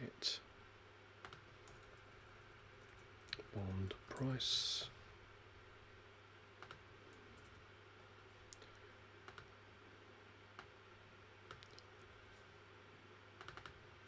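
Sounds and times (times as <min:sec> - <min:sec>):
low steady hum: 0:00.0 - 0:14.0
computer keyboard and mouse clicks: 0:01.2 - 0:02.0, 0:06.6 - 0:06.8, 0:09.3 - 0:09.5, 0:11.5 - 0:11.9, 0:13.4 - 0:13.8.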